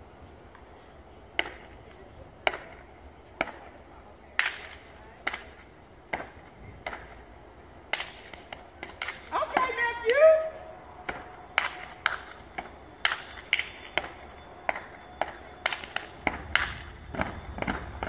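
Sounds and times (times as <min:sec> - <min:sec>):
hand claps: 0:04.4 - 0:05.5, 0:07.9 - 0:10.2, 0:11.1 - 0:17.8.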